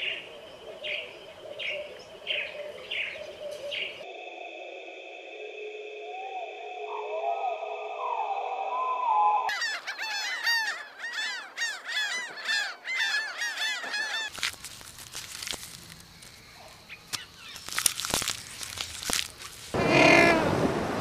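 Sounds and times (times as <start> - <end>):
birds honking calls: 9.5 - 14.4, 19.8 - 20.6
sharp clicks and cracks: 17.1 - 19.8.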